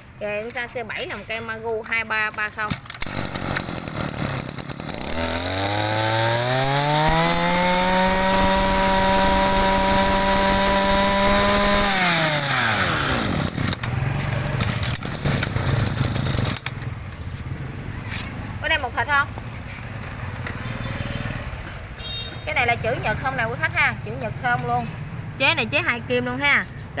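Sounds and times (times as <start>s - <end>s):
brush cutter engine revving: 2.9s - 16.7s.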